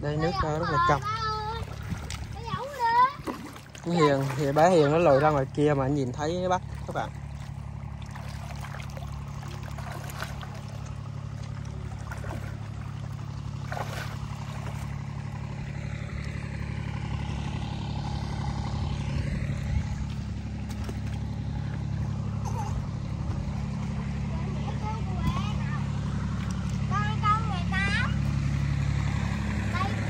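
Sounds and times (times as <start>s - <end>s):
motor running steadily: 0.0s - 30.0s
small water splashes: 0.2s - 22.5s, 25.2s - 27.0s.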